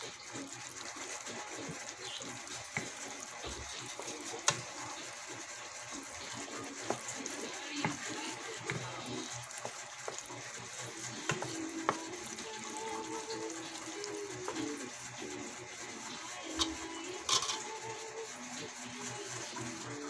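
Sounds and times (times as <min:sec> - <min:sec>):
spatula knocking against pan: 0:11.2 - 0:12.1.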